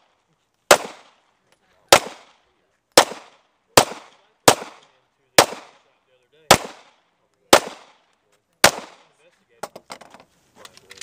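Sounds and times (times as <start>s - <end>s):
pistol shots with echo: 0.7s - 1.2s, 1.9s - 5.9s, 6.5s - 9.1s.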